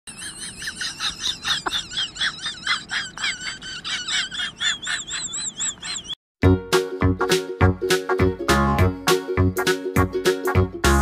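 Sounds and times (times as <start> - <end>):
high wavering animal chirps: 0.1 - 6.2.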